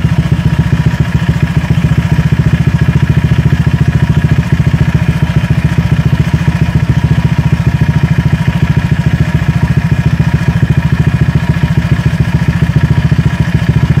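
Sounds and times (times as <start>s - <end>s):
scooter engine idling: 0.0s - 14.0s.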